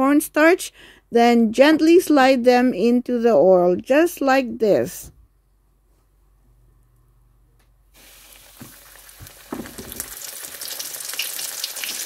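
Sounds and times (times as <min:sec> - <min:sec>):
deep-frying sizzle: 0:08.0 - 0:12.0.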